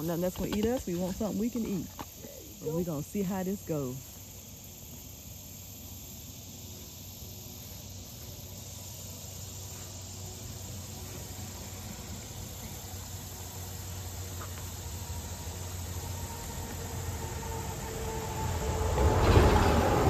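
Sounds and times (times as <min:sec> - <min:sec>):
insects humming: 0:00.0 - 0:20.0
car passing on bridge: 0:10.7 - 0:20.0.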